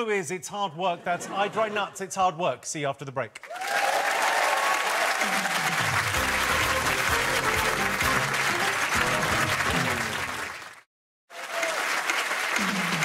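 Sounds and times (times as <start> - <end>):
studio audience applauding: 3.4 - 13.0
theme music: 5.2 - 10.8.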